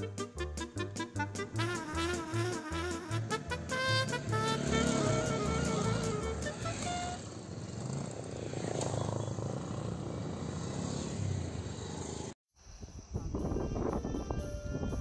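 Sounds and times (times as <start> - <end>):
background music: 0.0 - 7.2
motorcycles riding past: 3.2 - 12.4.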